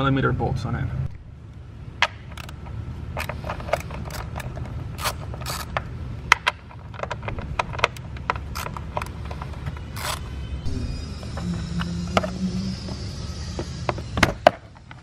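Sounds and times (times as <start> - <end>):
steady low hum: 0.0 - 15.0
ratchet wrench clicking: 2.3 - 2.6, 3.2 - 5.8, 9.9 - 10.3.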